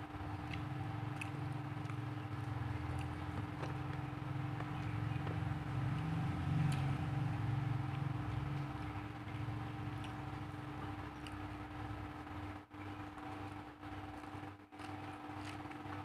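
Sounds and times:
low rumble with hum: 0.0s - 16.0s.

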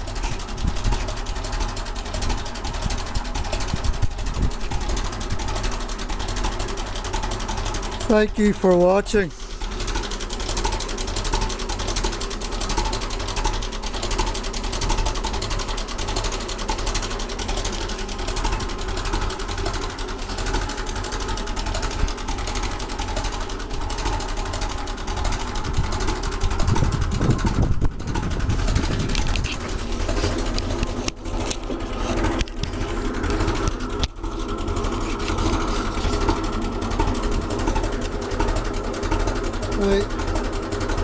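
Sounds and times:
tractor engine idling: 0.0s - 41.0s
low rumble: 25.3s - 34.8s.

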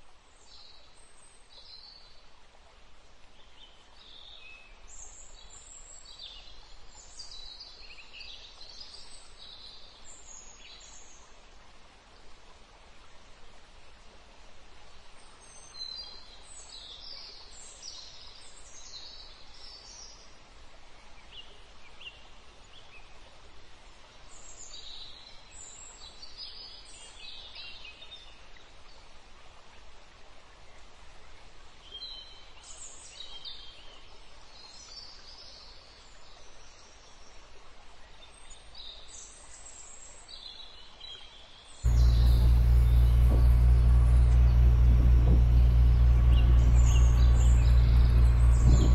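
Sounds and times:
faint steady hiss: 0.0s - 48.9s
birds chirping and whistling: 41.9s - 48.9s
low rumble of moving vehicle: 41.9s - 48.9s.

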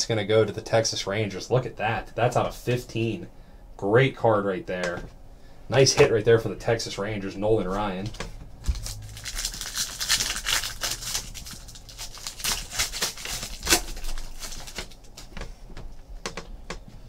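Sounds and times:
foil wrapper crinkling and tearing: 8.6s - 15.4s.

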